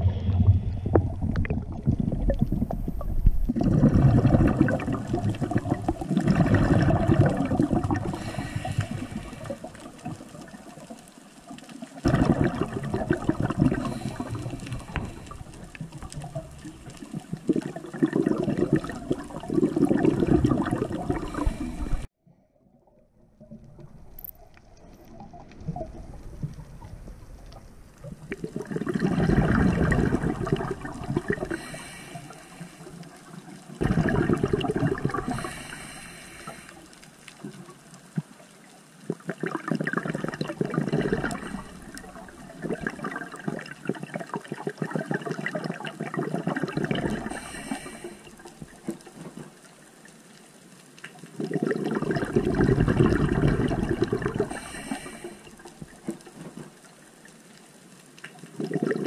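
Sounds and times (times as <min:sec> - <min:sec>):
underwater exhaust bubbles: 0:00.0 - 0:22.1, 0:23.3 - 0:59.0
regulator inhalation hiss: 0:08.1 - 0:09.6, 0:31.5 - 0:33.1, 0:35.3 - 0:36.9, 0:47.3 - 0:48.4, 0:54.5 - 0:55.5.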